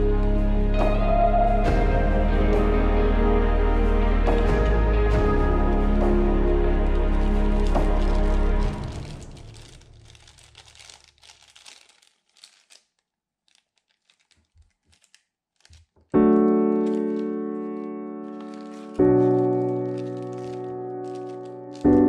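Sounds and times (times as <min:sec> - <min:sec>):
piano music: 0:00.0 - 0:09.8, 0:16.2 - 0:22.0
plastic bag crinkling: 0:05.6 - 0:22.0.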